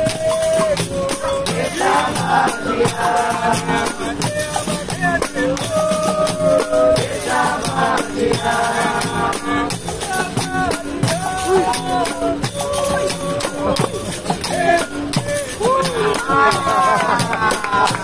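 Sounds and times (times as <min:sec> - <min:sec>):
berimbau playing rhythm: 0:00.0 - 0:18.0
shaker rattling: 0:00.0 - 0:18.0
tambourine jingles: 0:00.0 - 0:18.0
voices singing: 0:00.0 - 0:18.0.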